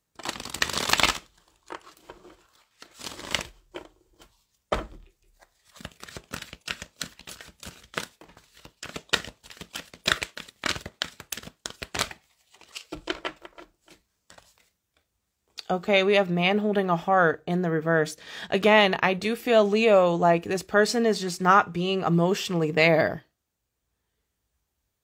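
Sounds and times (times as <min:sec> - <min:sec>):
cards being shuffled: 0:00.2 - 0:14.7.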